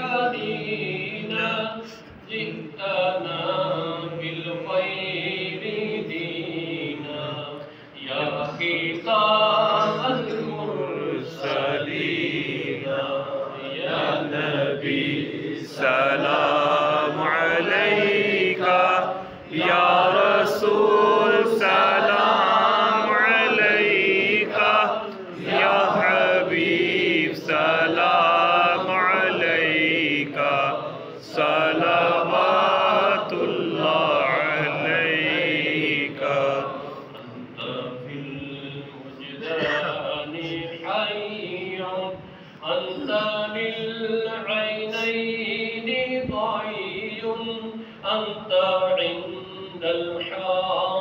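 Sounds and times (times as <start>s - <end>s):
man chanting into a microphone: 15.5s - 51.0s.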